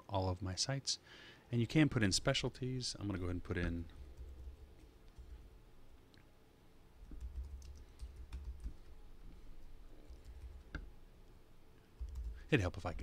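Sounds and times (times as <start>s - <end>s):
keyboard typing: 7.0s - 8.9s, 12.0s - 12.4s.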